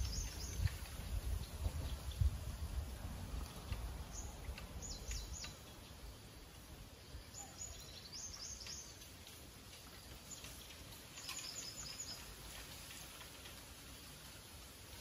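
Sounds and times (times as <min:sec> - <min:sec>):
small bird chirping: 0:00.0 - 0:00.8, 0:03.7 - 0:06.1, 0:07.0 - 0:09.2, 0:10.0 - 0:12.6.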